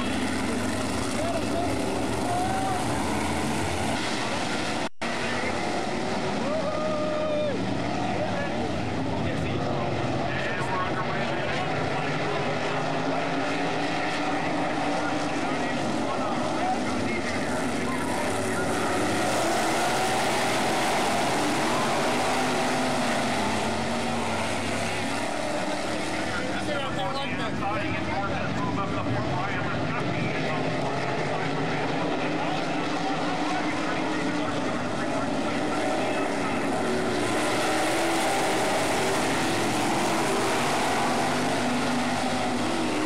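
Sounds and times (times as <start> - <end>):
race car engines roaring: 0.0 - 43.0.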